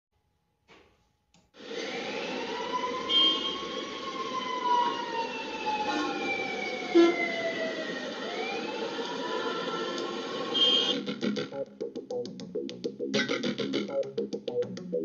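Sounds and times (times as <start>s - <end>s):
wailing siren-like tone: 1.6s - 11.0s.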